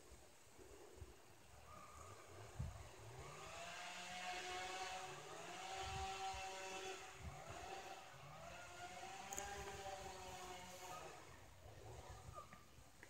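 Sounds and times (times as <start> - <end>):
zip line trolley whine: 2.2 - 12.5.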